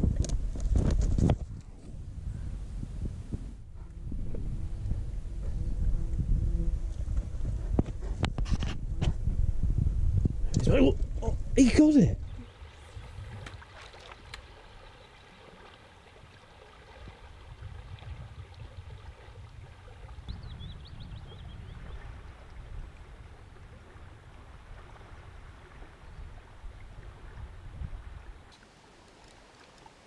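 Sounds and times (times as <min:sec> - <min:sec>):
river water flowing: 0:12.2 - 0:20.4, 0:21.6 - 0:30.0.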